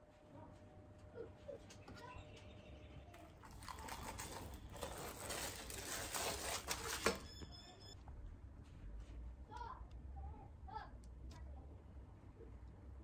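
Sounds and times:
plastic packaging crinkling: 3.4 - 7.2.

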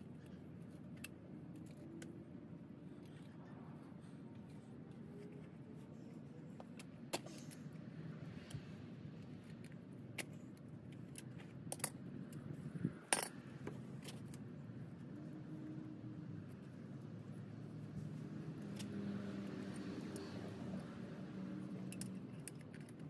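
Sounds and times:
tools and fittings clinking: 21.8 - 23.0.

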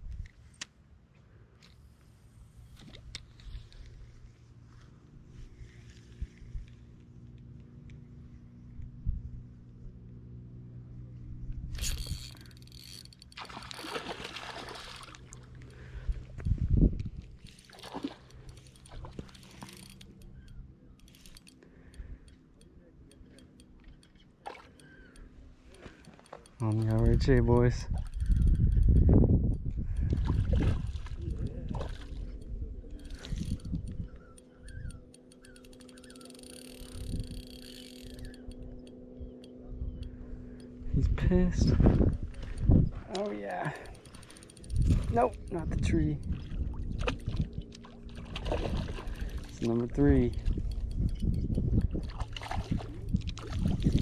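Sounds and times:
steady low hum: 0.0 - 54.0
fishing reel clicking: 11.7 - 14.0, 17.4 - 30.2, 31.1 - 41.4, 42.0 - 46.3, 49.1 - 54.0
water splashing and sloshing: 11.9 - 16.4, 17.0 - 20.3, 23.8 - 26.7, 30.0 - 32.4, 43.1 - 50.9, 51.6 - 54.0
low handling rumble: 24.9 - 54.0.

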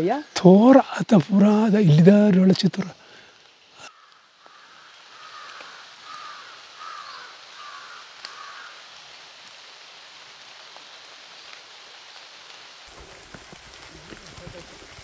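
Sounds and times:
forest background hiss: 0.0 - 15.0
crow cawing: 3.8 - 8.9.

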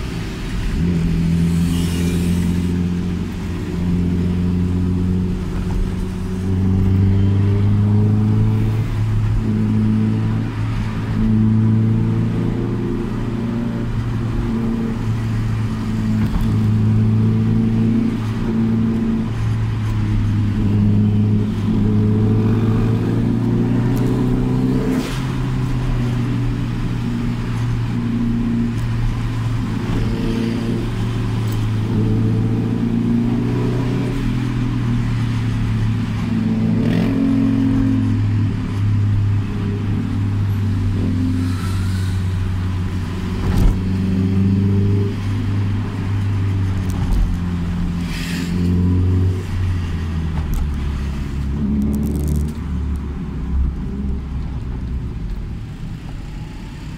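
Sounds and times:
car engine droning in cabin: 34.6 - 56.9.

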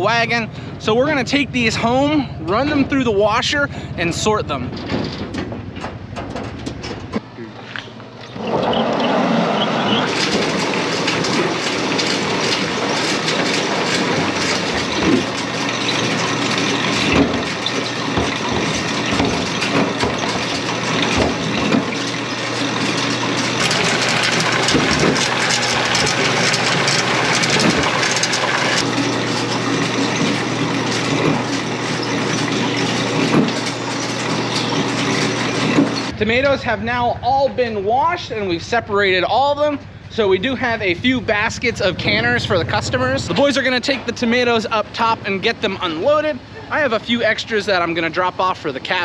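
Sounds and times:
motor hum: 0.5 - 38.4, 39.0 - 47.9
spraying water rushing: 23.6 - 28.8.

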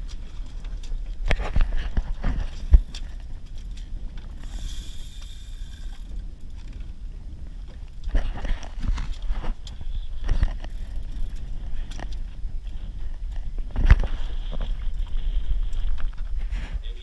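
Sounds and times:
wind rumbling on microphone: 0.0 - 17.0
fishing reel clicks and scrapes: 2.5 - 6.8, 10.5 - 12.2.

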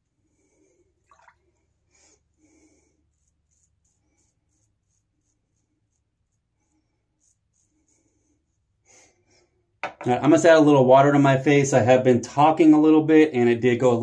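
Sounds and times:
razor scraping stubble: 3.0 - 8.2.

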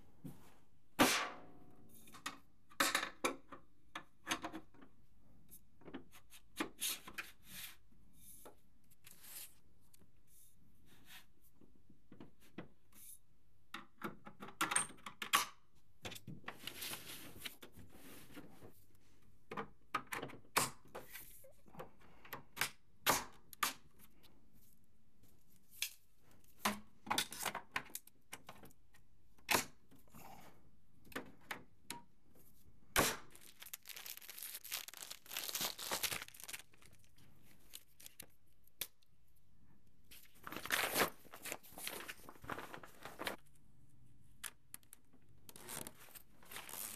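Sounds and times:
plastic parts clicking and knocking: 2.1 - 5.0, 13.7 - 16.3, 19.5 - 21.0
rustling and tearing: 33.3 - 38.3, 45.6 - 46.9.

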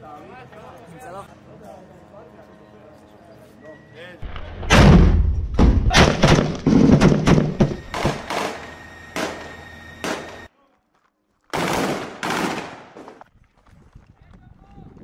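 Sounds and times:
rifle shots: 4.6 - 8.6, 9.2 - 10.4, 11.5 - 13.2.

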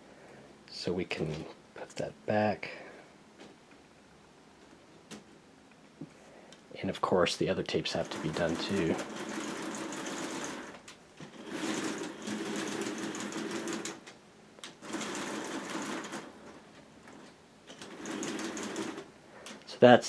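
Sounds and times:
plastic crank and gears clattering: 8.0 - 14.0, 17.1 - 19.6.

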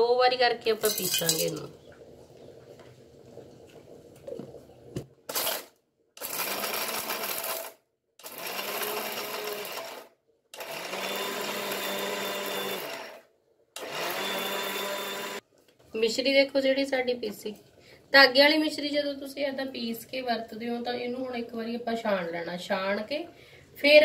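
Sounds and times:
mixer grinder motor grinding sugar: 6.2 - 13.2, 13.8 - 15.4.

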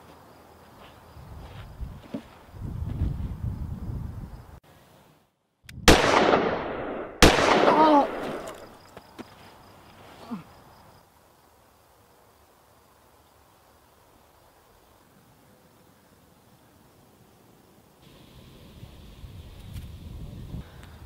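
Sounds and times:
handgun shots echoing: 5.9 - 8.7.

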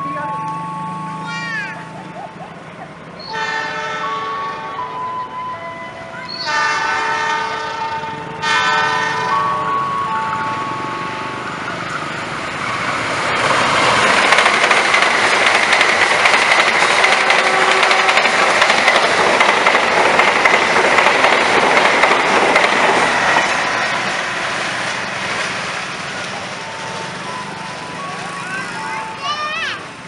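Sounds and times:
train wheels clattering over rails: 11.3 - 28.8.

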